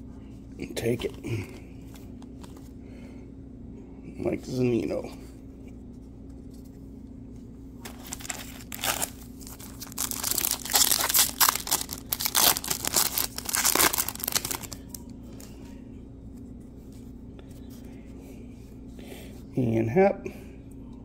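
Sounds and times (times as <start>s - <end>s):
card pack wrapper crinkling: 7.8s - 15.0s.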